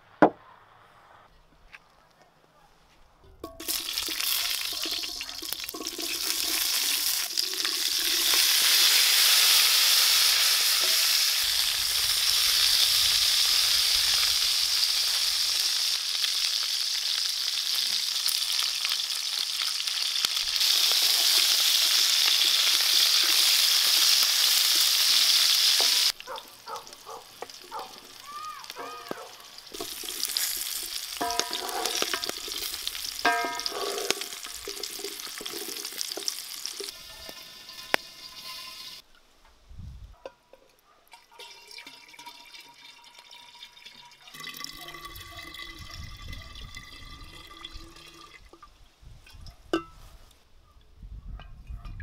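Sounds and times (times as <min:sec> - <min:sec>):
potatoes sizzling in hot fat: 0:03.6 - 0:39.0.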